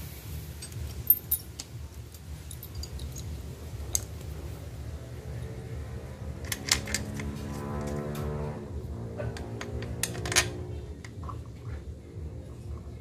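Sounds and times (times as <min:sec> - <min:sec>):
background music: 0:00.0 - 0:13.0
steady low hum: 0:00.0 - 0:13.0
metal tools clicking: 0:00.6 - 0:04.2, 0:06.4 - 0:07.4, 0:09.4 - 0:11.2.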